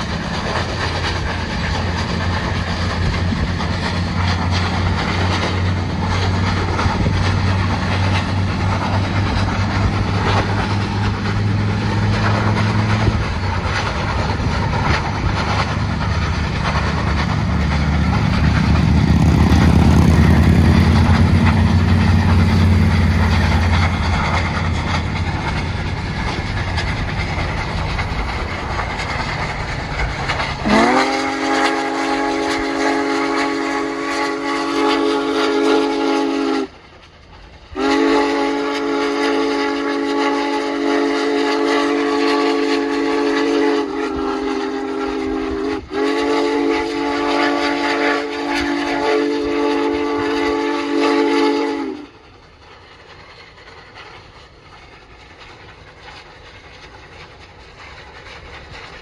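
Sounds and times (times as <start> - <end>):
steam locomotive exhaust beats: 0.0 - 59.0
steam whistle blasts: 30.6 - 36.8, 37.8 - 52.1.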